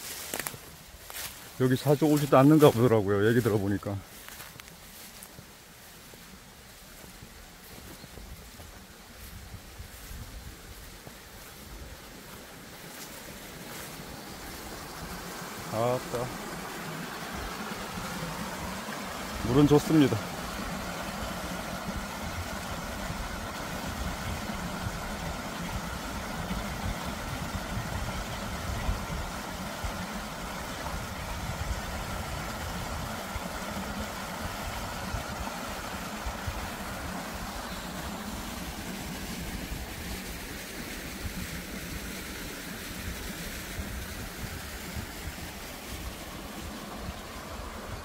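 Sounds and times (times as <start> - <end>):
water rushing over rocks: 11.1 - 48.0.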